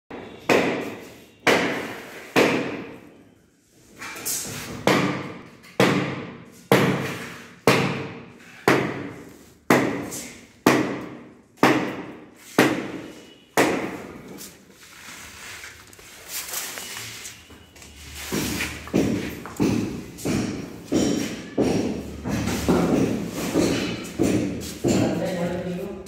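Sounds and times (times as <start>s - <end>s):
heavy rhythmic thuds: 18.3s - 25.7s.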